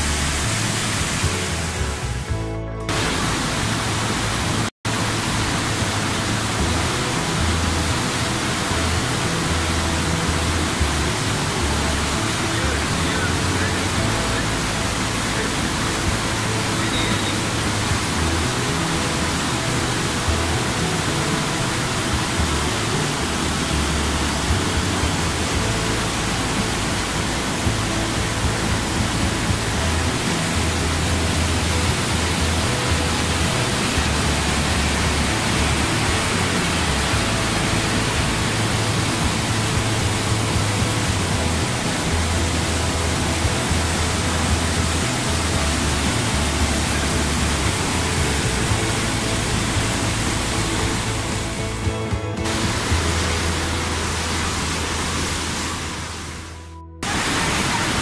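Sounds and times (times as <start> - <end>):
background music: 0.0 - 58.0
waterfall rushing: 0.0 - 58.0.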